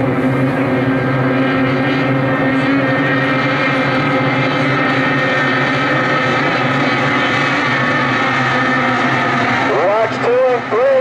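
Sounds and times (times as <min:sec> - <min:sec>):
racing boat engines: 0:00.0 - 0:11.0.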